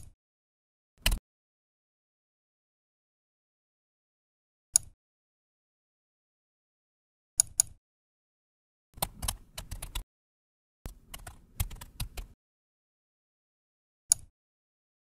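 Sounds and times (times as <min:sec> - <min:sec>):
computer mouse double-click: 0:04.8 - 0:05.0, 0:07.4 - 0:07.8, 0:14.1 - 0:14.3
keyboard typing: 0:09.0 - 0:10.0, 0:10.9 - 0:12.4.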